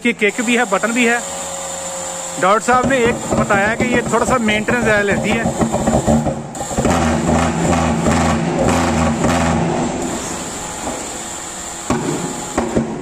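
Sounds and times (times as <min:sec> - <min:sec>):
fogging machine buzzing: 0:00.0 - 0:13.0.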